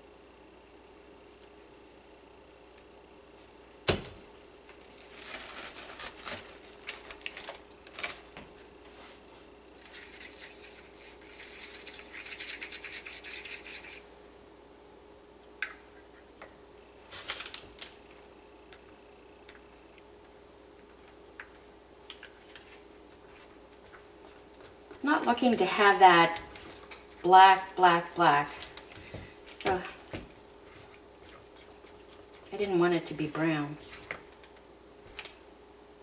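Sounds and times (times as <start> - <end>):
stick scraping inside a cup: 9.9 - 14.0.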